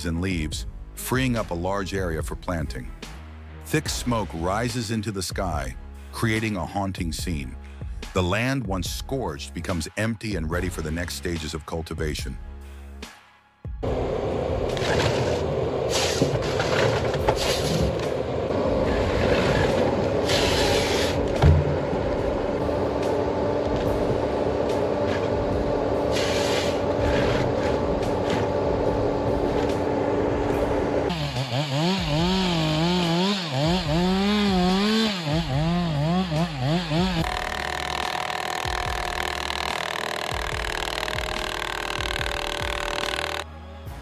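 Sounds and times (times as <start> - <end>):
harvester engine and hydraulics: 13.8 - 43.5
harvester head sawing stems: 31.1 - 43.4.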